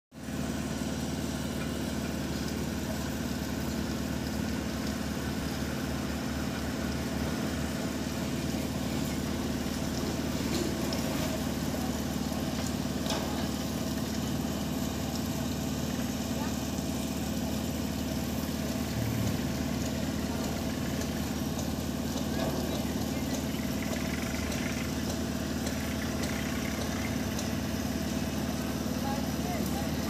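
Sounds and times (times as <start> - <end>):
roll-forming machine engine drone: 18.1 - 30.0.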